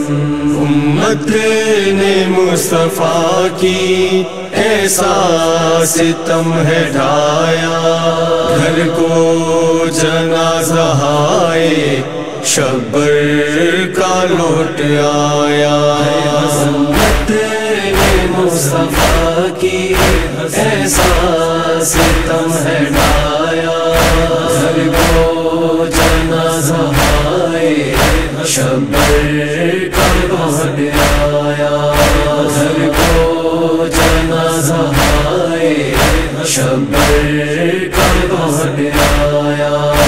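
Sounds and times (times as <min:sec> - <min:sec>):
chorus chanting: 0:00.0 - 0:40.0
sharp rhythmic thuds: 0:16.5 - 0:40.0.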